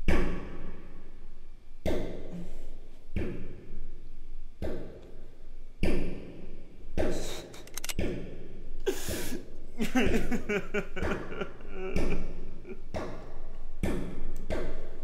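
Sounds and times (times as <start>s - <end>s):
man sobbing: 8.9s - 12.8s.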